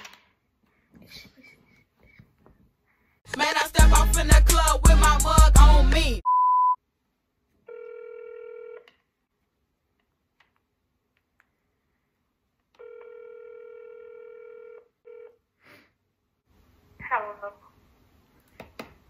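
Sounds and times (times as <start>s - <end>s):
censor bleep: 6.2s - 6.8s
phone ringback tone: 7.7s - 8.9s, 12.8s - 15.4s.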